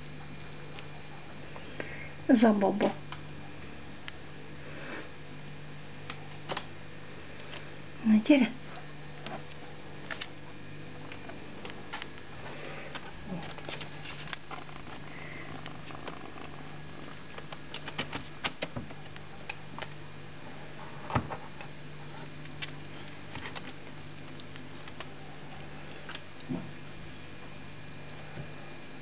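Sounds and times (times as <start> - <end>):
steady low hum: 0.0 - 29.0
claws clicking on plastic and paper: 17.3 - 20.0.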